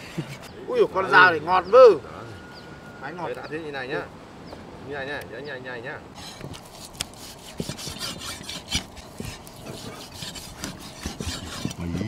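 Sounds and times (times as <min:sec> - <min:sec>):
knife slicing meat: 0:06.2 - 0:11.8.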